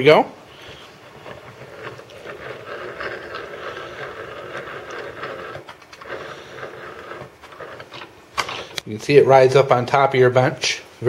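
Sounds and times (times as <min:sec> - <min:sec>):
vise screw clicking and rattling: 0:01.2 - 0:08.8.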